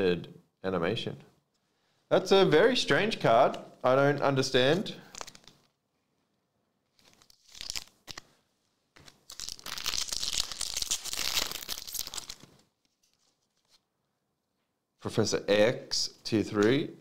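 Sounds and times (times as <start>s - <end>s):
foil wrapper tearing and crinkling: 7.0s - 8.3s, 9.0s - 13.8s.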